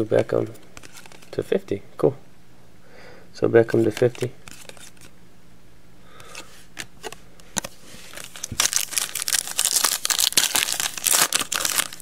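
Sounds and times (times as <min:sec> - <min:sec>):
foil wrapper crinkling: 0:08.1 - 0:12.0.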